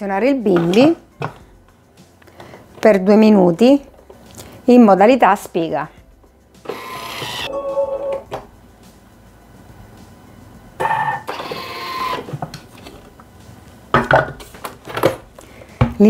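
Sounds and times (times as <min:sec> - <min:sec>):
food processor motor whirring: 0:06.7 - 0:07.5.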